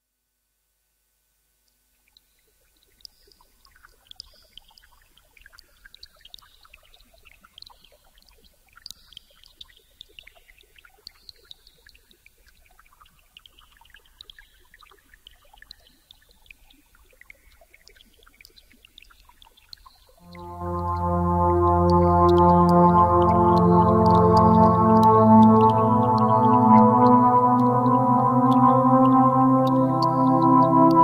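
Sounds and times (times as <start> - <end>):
high gliding electronic tones: 20.3 - 31.0
low hum: 20.3 - 31.0.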